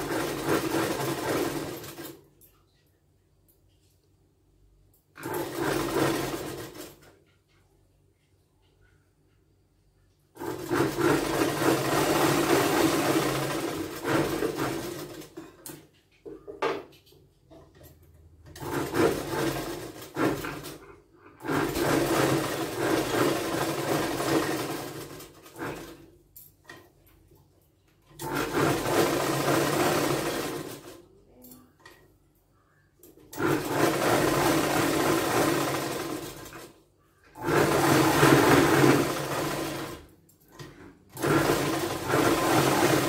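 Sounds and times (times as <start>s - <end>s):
sewing machine stitching: 0.0s - 2.3s, 5.1s - 7.3s, 10.3s - 16.0s, 18.4s - 26.9s, 28.1s - 31.0s, 33.2s - 43.0s.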